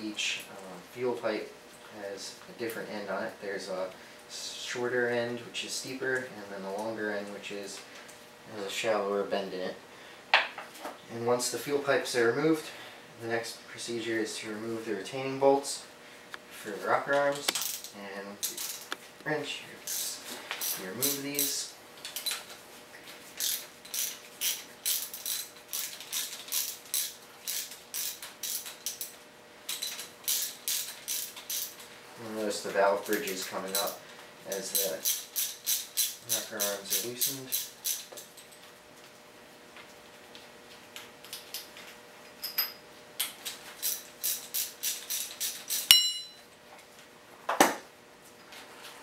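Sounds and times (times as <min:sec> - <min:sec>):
ratchet wrench clicking: 0:23.4 - 0:29.1, 0:29.7 - 0:31.7, 0:33.1 - 0:38.2, 0:43.8 - 0:46.3
socket ratchet clicking: 0:33.8 - 0:38.1
sharp metal clink: 0:45.8 - 0:46.4.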